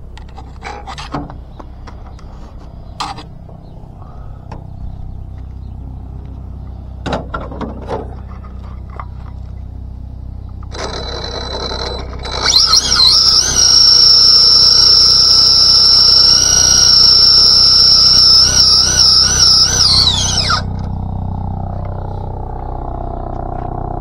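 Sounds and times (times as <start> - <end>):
electric motor high-pitched whine: 10.6 - 24.0.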